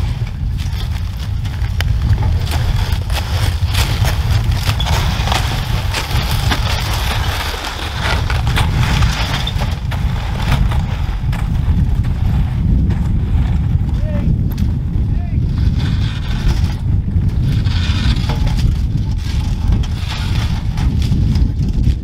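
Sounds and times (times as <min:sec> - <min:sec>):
footsteps in deep snow: 0:00.0 - 0:13.9
sleds dragging through snow: 0:00.0 - 0:22.0
wind buffeting microphone: 0:00.0 - 0:22.0.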